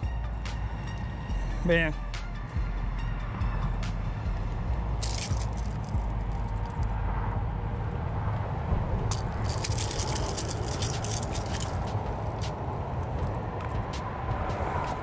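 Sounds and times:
low rumble: 3.4 - 12.4.

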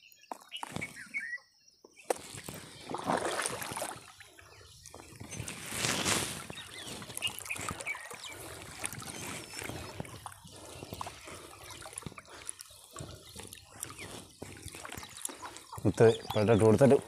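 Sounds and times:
water splashing and trickling: 2.1 - 17.0
water drips: 6.4 - 17.0.

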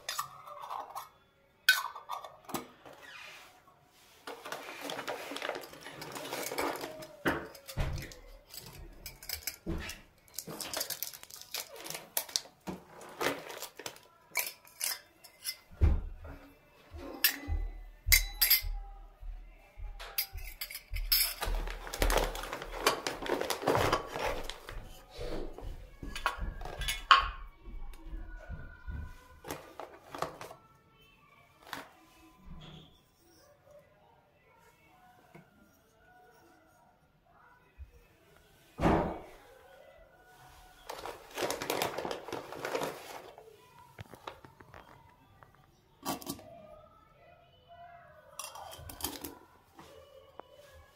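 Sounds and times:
toy metal utensils clinking: 0.0 - 2.6, 4.4 - 15.7, 20.1 - 23.6, 48.4 - 49.4
plastic packaging rustling: 4.0 - 14.8, 21.2 - 26.8, 29.4 - 30.6, 31.6 - 32.0, 40.4 - 45.6.

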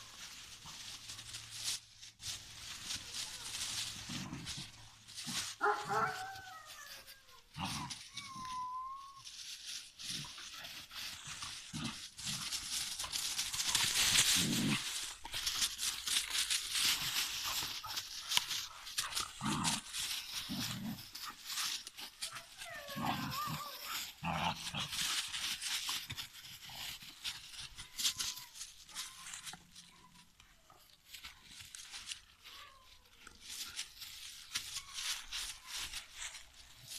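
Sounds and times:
dry leaves rustling and crunching: 0.0 - 36.9
dog whining: 5.6 - 9.3, 21.2 - 24.4.

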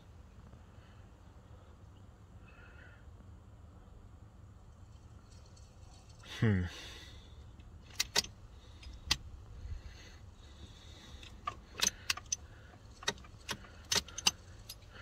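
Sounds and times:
car keys jangling: 4.8 - 6.5, 7.8 - 9.4, 10.5 - 15.0
key clicking in ignition: 7.8 - 9.4, 11.0 - 15.0.

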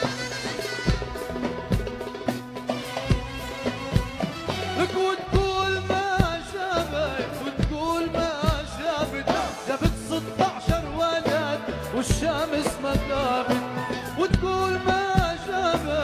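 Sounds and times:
drum beat: 0.0 - 16.0
ornamented singing voice: 4.7 - 16.0.

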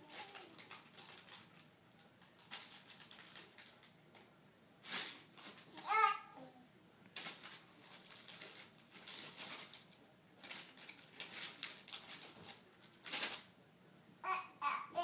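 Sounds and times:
baby's voice: 0.0 - 0.8, 5.8 - 6.7, 14.2 - 15.0
plastic package crinkling: 0.0 - 5.7, 7.2 - 13.5.

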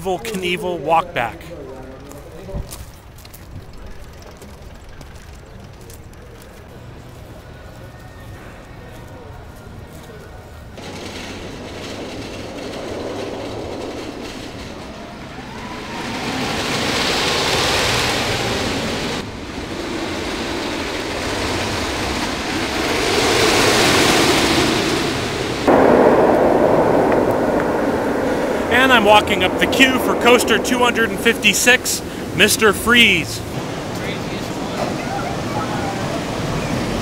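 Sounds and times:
roller coaster train on track: 0.0 - 37.0.

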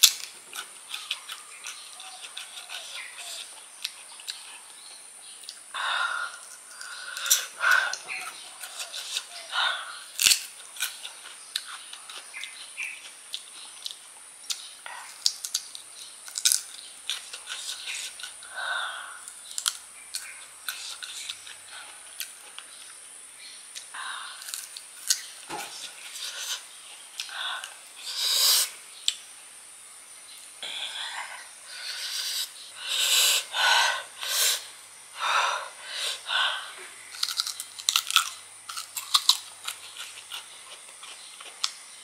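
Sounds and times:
crunchy fruit chewing: 0.0 - 29.4, 30.3 - 42.0.

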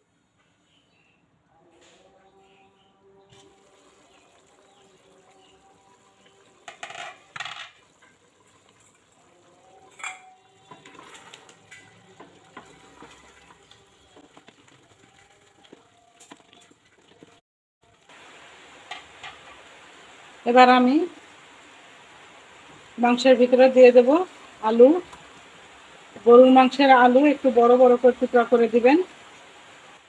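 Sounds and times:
cookware clattering: 6.6 - 8.1, 9.8 - 13.6
wooden spatula scraping a pot: 9.8 - 17.4.

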